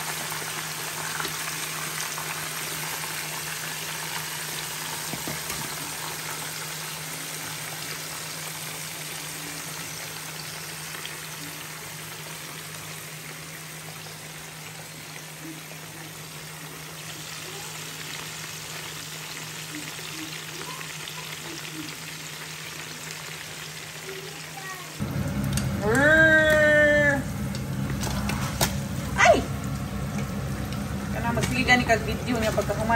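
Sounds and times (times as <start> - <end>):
oil sizzling and crackling: 0.0 - 32.9
low steady hum: 25.0 - 32.9.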